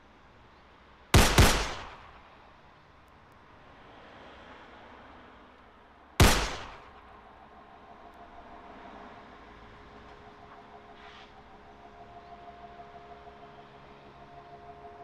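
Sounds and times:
loud gunshots echoing: 1.2 - 2.2, 6.2 - 7.0.

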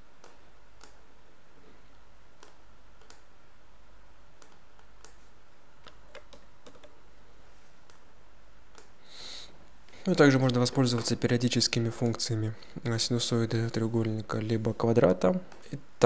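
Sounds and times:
faint low hum: 0.0 - 16.0
computer mouse clicking: 0.2 - 1.0, 2.4 - 3.3, 4.4 - 7.0, 8.7 - 9.0.

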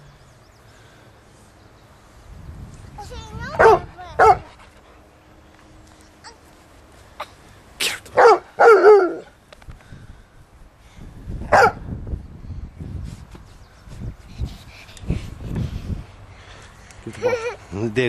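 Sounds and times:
dog barking: 3.6 - 4.5, 8.2 - 9.3, 11.5 - 11.8.

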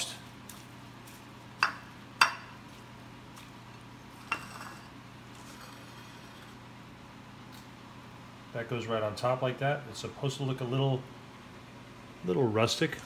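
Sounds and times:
ceramic bowl clinking: 4.2 - 4.9.

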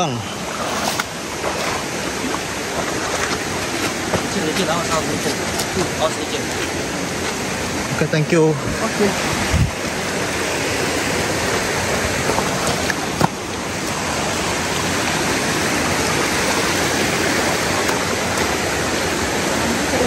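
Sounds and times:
river water rushing: 0.0 - 20.0.

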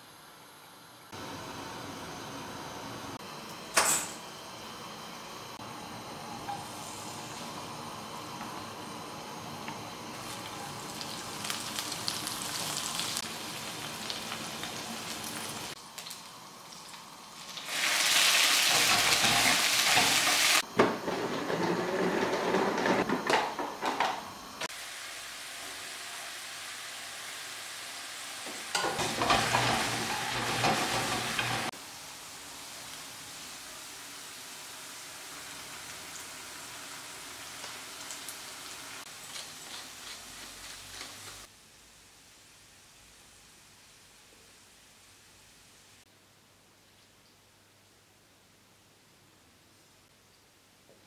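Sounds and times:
garlic sizzling in oil: 5.8 - 21.5, 24.6 - 41.5.

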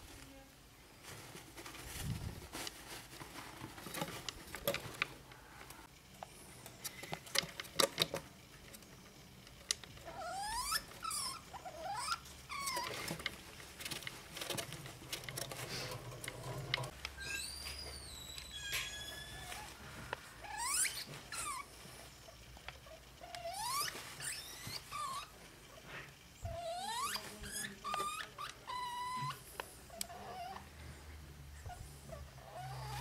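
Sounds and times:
rustling in paper bedding: 1.0 - 5.0
rodent squeaks: 10.1 - 13.0, 17.2 - 19.7, 20.4 - 21.7, 22.8 - 25.4, 26.4 - 30.6.

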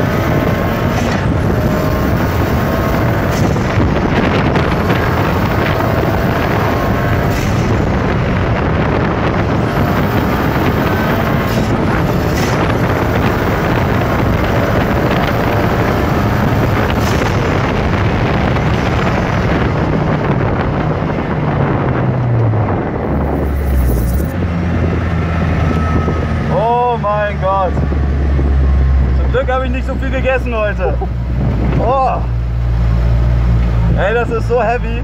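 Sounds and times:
car engine running: 0.0 - 35.0
wind rushing onto microphone: 0.0 - 35.0.

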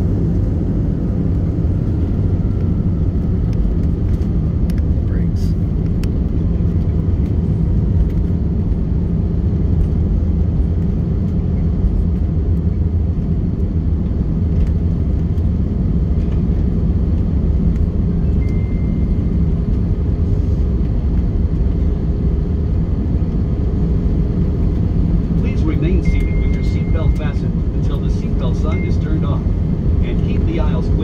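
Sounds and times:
aircraft engines at low power: 0.0 - 31.0
wheels rumbling on runway: 0.0 - 31.0.

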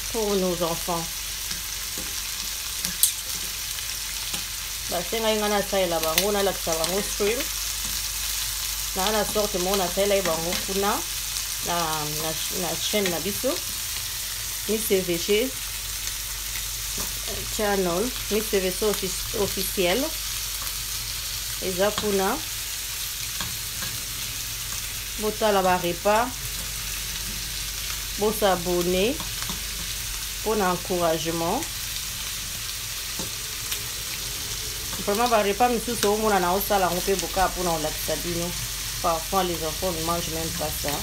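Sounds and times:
shrimp sizzling in a frying pan: 0.0 - 41.0.

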